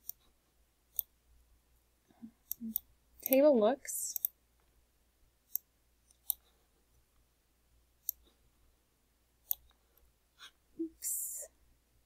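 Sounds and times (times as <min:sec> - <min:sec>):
computer mouse clicks: 0:00.0 - 0:00.3, 0:00.9 - 0:01.1, 0:02.4 - 0:03.4, 0:04.1 - 0:04.4, 0:05.5 - 0:06.5, 0:08.0 - 0:08.3, 0:09.4 - 0:09.8.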